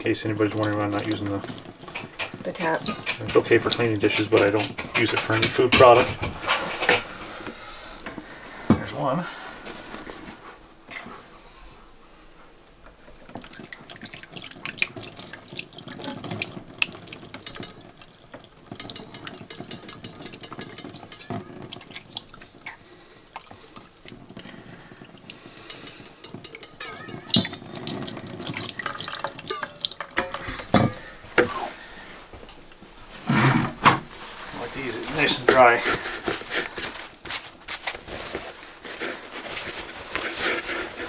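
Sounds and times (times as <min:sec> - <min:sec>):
water drips: 0:00.0 - 0:06.1, 0:13.0 - 0:31.1
water splashing into metal sink: 0:00.0 - 0:06.2, 0:13.1 - 0:31.1.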